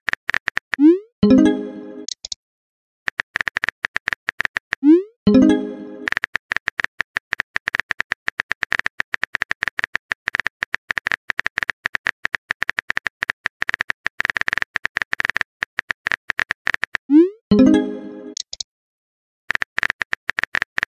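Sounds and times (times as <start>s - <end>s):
phone keyboard clicking: 3.1s - 4.8s, 6.1s - 17.1s, 19.5s - 20.9s.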